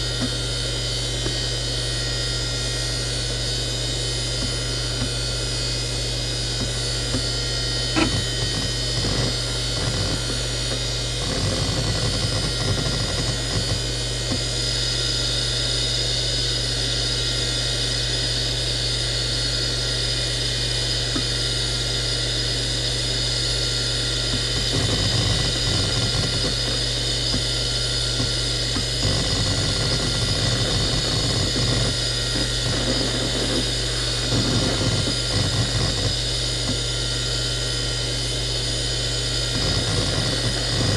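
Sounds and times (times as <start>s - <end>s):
hard drive whine: 0.0s - 40.9s
hard drive heads chattering: 7.9s - 10.4s, 24.3s - 27.5s, 28.2s - 36.8s.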